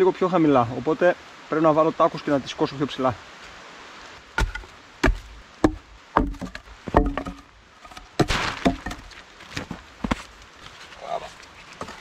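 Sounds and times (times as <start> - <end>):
sharp wooden knocks: 4.4 - 10.2
scraping rustle: 6.4 - 12.0.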